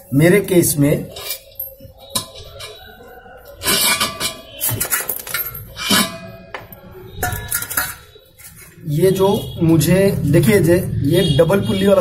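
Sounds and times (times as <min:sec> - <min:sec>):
steel parts clanking: 0:01.1 - 0:08.9.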